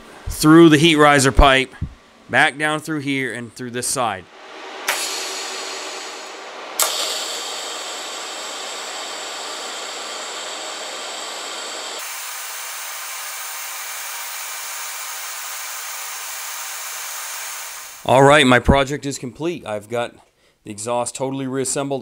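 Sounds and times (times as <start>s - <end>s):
welding arc striking click: 4.8s - 10.7s
welding arc hissing: 4.9s - 18.1s.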